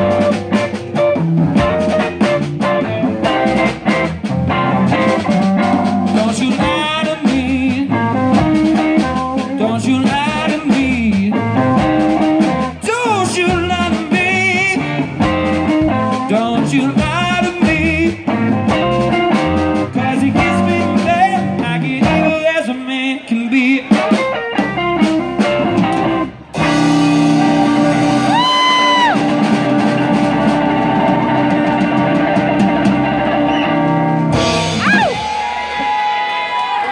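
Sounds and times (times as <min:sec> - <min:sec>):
live rock band: 0:00.0 - 0:36.9
person singing: 0:06.0 - 0:11.9, 0:19.8 - 0:24.2.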